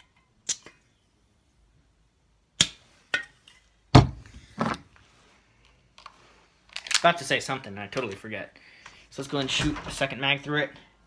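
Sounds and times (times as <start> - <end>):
heavy thump: 3.9 - 4.8.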